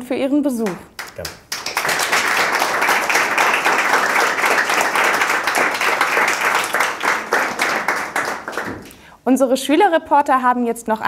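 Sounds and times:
audience applauding: 0:00.6 - 0:09.0.

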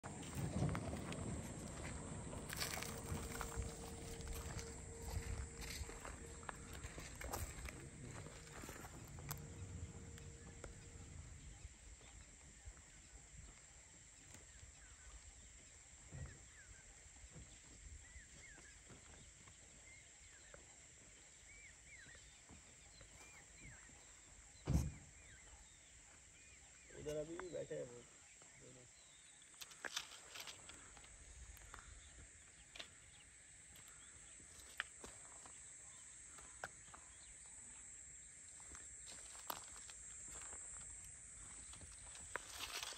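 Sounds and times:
steady high faint tone: 0:00.0 - 0:13.5.

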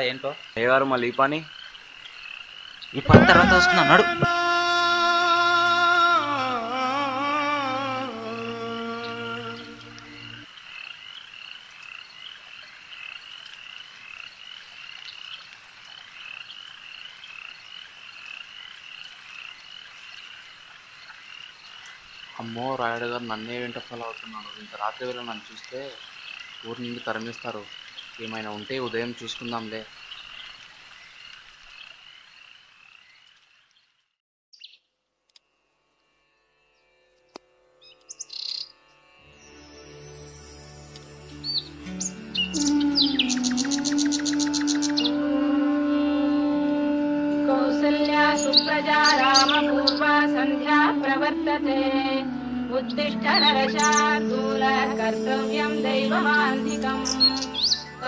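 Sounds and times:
insects chirring: 0:00.0 - 0:33.8, 0:37.9 - 0:58.0
frogs croaking: 0:00.0 - 0:34.0, 0:37.8 - 0:58.0
held music chord: 0:03.1 - 0:10.5, 0:39.2 - 0:44.1, 0:44.7 - 0:58.0.

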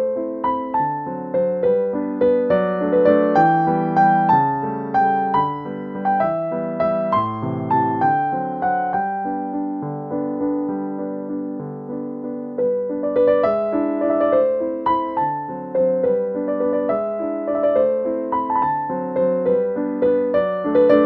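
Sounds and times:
gentle piano melody: 0:00.0 - 0:21.0.

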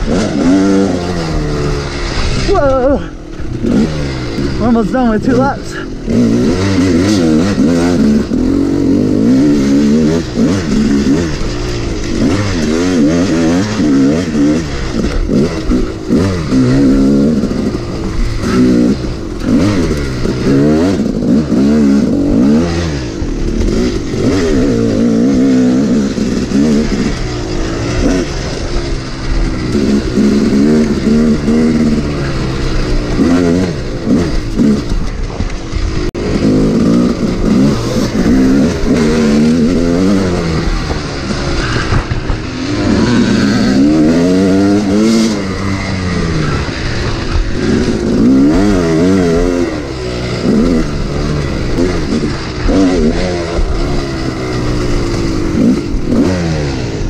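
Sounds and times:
bike rattling over rough ground: 0:00.0 - 0:57.0
dirt bike engine revving: 0:00.0 - 0:57.0.

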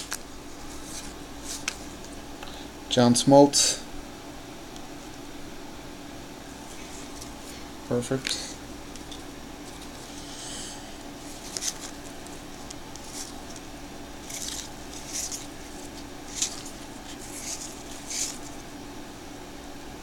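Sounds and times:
cards sliding with a swish: 0:00.0 - 0:02.2, 0:08.2 - 0:18.6
steady low hum: 0:00.0 - 0:20.0.

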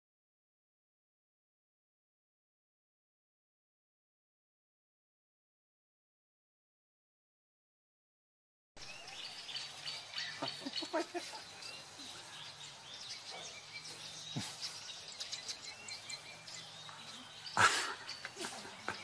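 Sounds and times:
small birds chirping: 0:08.8 - 0:19.0.

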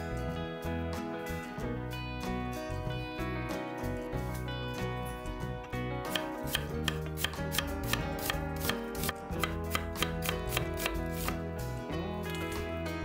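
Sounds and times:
knife slicing on wooden board: 0:06.1 - 0:11.4.

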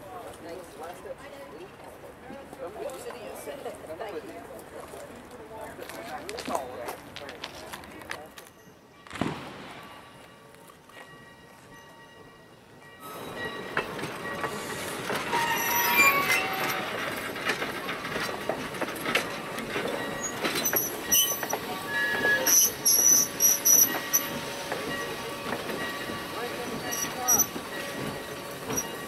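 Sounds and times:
train wheels clanking over rail joints: 0:13.1 - 0:29.0
wheels squealing: 0:14.3 - 0:29.0.

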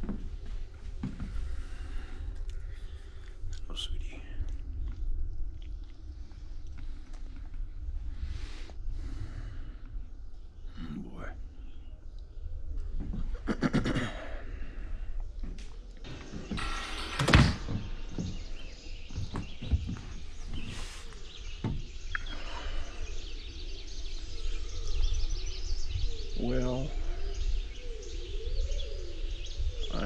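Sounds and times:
footsteps: 0:00.0 - 0:01.7, 0:15.4 - 0:22.1
faint birds chirping: 0:00.0 - 0:30.0
door opening and shutting: 0:16.1 - 0:20.0.

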